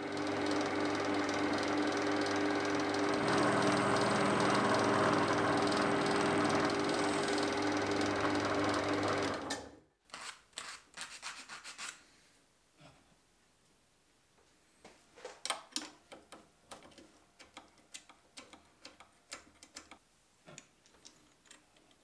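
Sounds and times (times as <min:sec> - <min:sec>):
drill press humming: 0:00.0 - 0:09.7
drill bit drilling into metal: 0:03.0 - 0:08.2
metal scraping on sanding block: 0:10.6 - 0:12.0.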